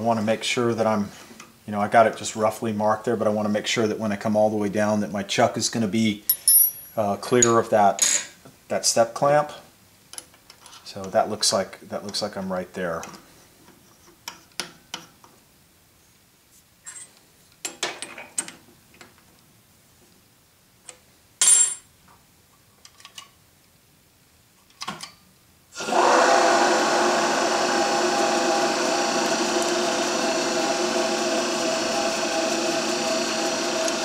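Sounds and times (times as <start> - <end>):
drill press motor humming: 25.8 - 34.0
drill bit clicking in chuck: 32.4 - 34.0.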